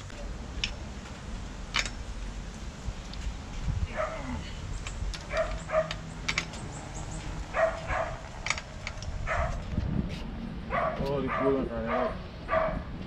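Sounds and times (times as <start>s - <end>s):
dog barking: 3.9s - 4.4s, 5.3s - 6.0s, 7.5s - 8.2s, 9.2s - 9.6s, 10.7s - 12.9s.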